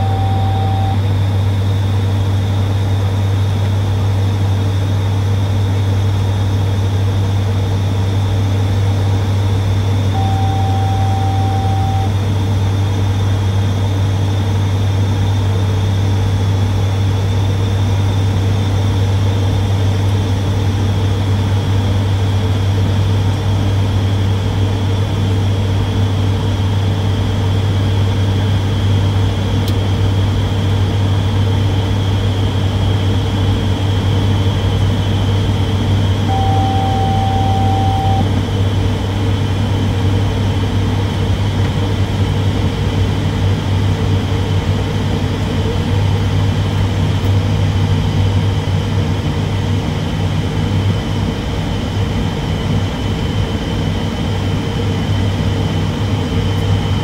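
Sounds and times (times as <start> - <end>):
cockpit beep: 0.0 - 1.0, 10.2 - 12.1, 36.3 - 38.3
turboprop engines droning: 0.0 - 57.0.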